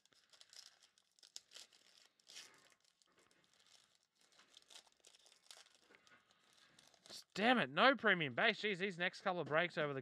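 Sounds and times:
foil wrapper tearing and crumpling: 0.0 - 7.2.

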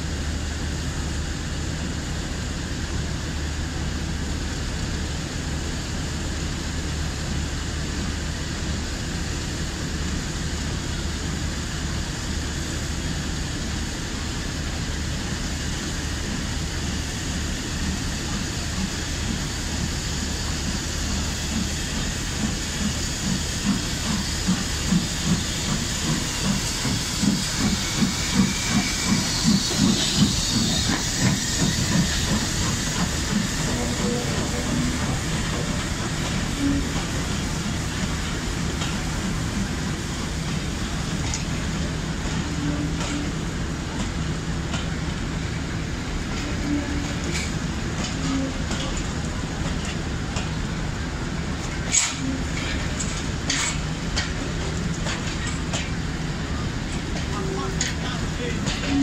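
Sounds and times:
steam locomotive hissing: 0.0 - 59.0
steam locomotive exhaust chuffs: 3.3 - 59.0.

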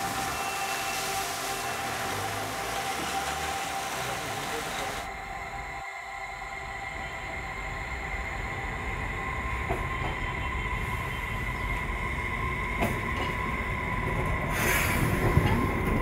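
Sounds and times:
electric tram running on rails: 0.0 - 16.0.

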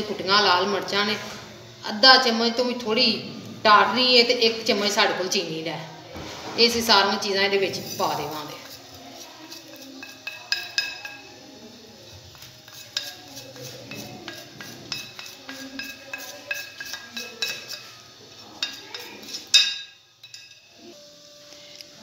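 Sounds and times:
metal utensils clinking on pan: 7.5 - 20.9.

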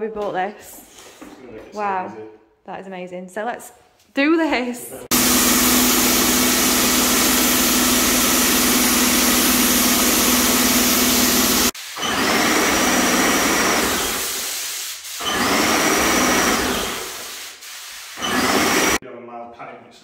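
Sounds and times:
electric paint sprayer spraying: 5.1 - 19.0.

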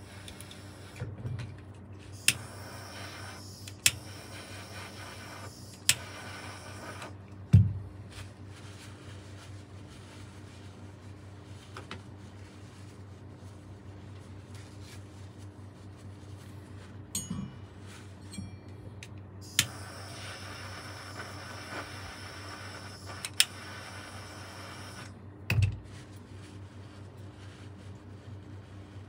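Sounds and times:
hiss with high whine: 0.0 - 1.0, 2.1 - 7.2, 19.4 - 25.1
steady low hum: 0.0 - 29.0
metal clink ringing: 17.2 - 17.7.

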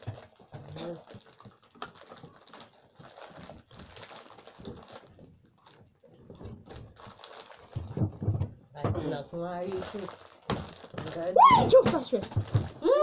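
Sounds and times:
plastic snack packet crinkling: 0.0 - 8.2, 9.4 - 13.0.

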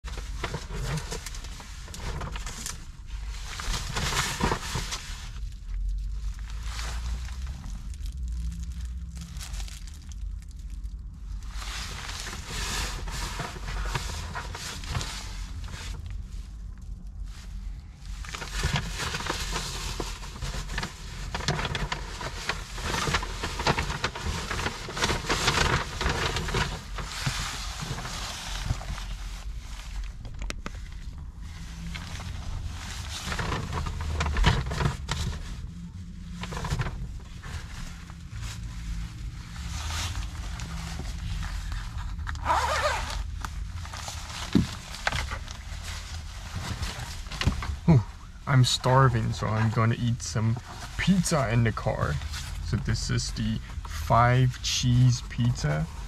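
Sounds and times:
low rumble: 0.0 - 42.4
plastic bag crinkling: 0.2 - 17.2, 18.1 - 35.6
jacket rustling against seat: 11.3 - 56.0
jacket fabric brushing: 37.5 - 43.2.

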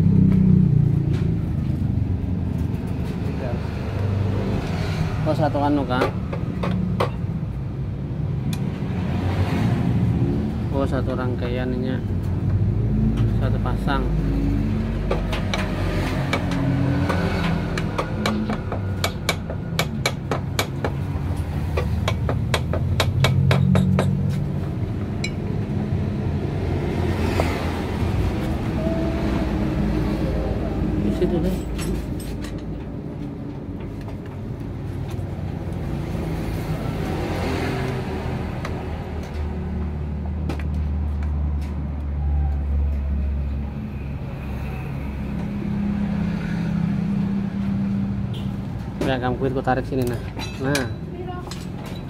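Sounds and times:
engine running with low rumble: 0.0 - 4.6
hammer tapping on metal: 15.0 - 21.0, 21.7 - 24.4.

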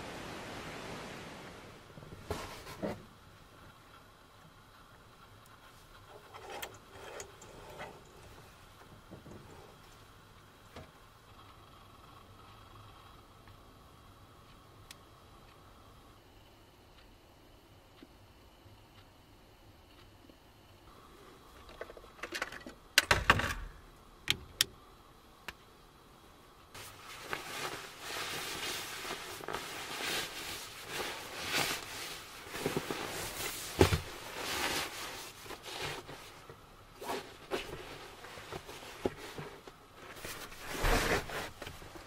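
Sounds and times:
fabric rustling and swishing: 0.0 - 3.0, 26.8 - 42.0.

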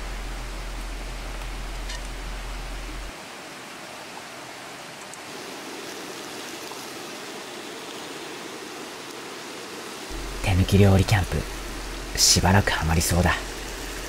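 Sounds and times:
shrimp hissing in a skillet: 13.4 - 14.0.

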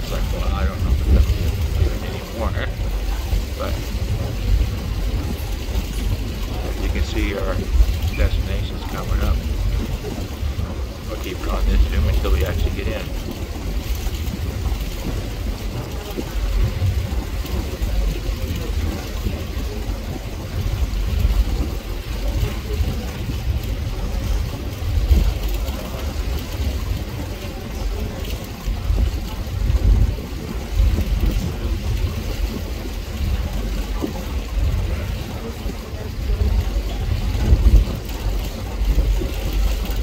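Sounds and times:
boat engines rumbling: 0.0 - 40.0
steady rushing noise: 0.0 - 40.0
wind buffeting microphone: 0.0 - 40.0.

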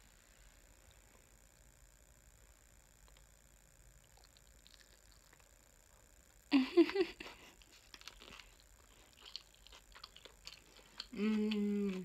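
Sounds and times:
wet chewing and mouth clicks: 4.0 - 5.6, 7.4 - 12.0
person humming mmm: 11.0 - 12.0.

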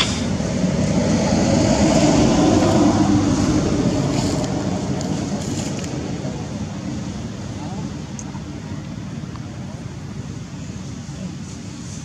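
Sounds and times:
motor vehicle passing: 0.0 - 6.7.

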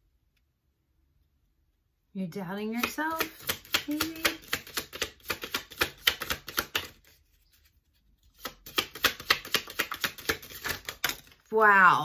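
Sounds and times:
cards being shuffled: 2.8 - 11.5.

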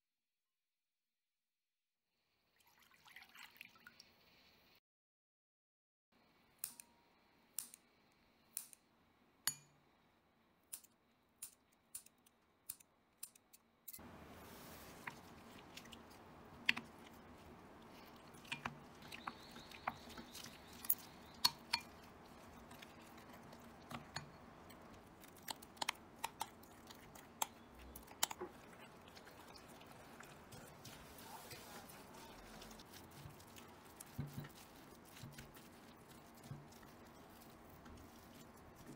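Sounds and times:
wooden spoon scraping bowl: 28.4 - 38.9.

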